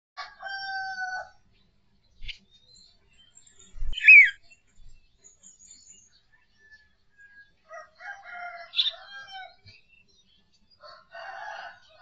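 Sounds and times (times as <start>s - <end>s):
bird chirp: 1.4s - 12.0s
birds calling: 2.2s - 6.9s.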